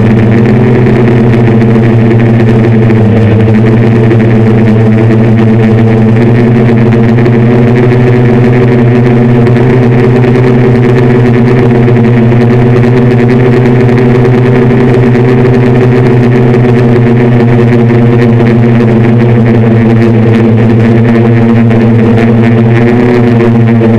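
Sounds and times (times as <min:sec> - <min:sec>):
drone propellers buzzing: 0:00.0 - 0:23.9.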